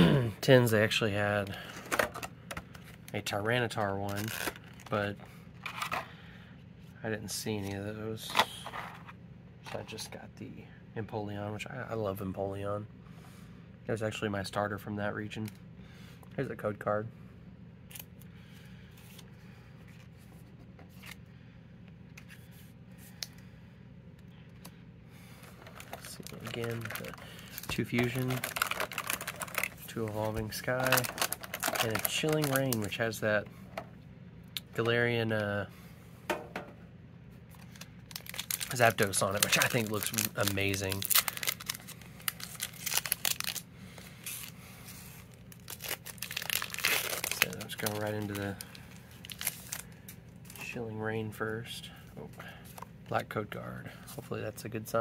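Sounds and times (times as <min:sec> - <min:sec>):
steady low hum: 0:00.0 - 0:55.0
cards and packaging rustling: 0:00.9 - 0:06.1, 0:07.5 - 0:09.1, 0:25.3 - 0:33.4, 0:37.5 - 0:50.8
foil wrapper crinkling: 0:04.0 - 0:05.0, 0:25.3 - 0:33.1, 0:37.5 - 0:50.7.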